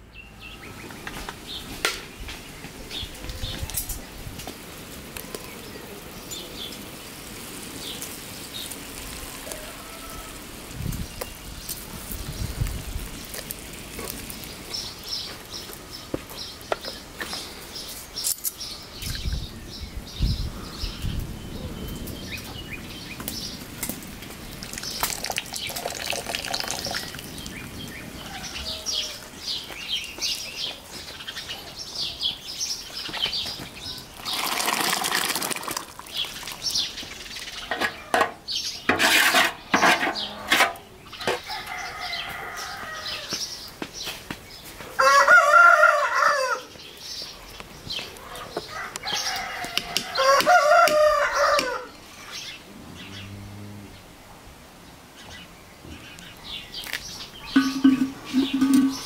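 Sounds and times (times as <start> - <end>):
small birds chirping: 0.0 - 38.9, 39.6 - 45.6, 46.6 - 59.0
rooster crowing: 9.2 - 10.7, 28.1 - 29.5, 41.3 - 43.4, 44.9 - 46.8, 48.6 - 52.0.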